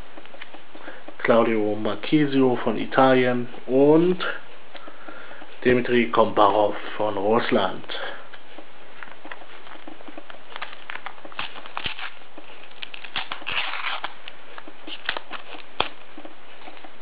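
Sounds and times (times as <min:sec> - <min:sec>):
paper packet crinkling and tearing: 0:10.5 - 0:16.0.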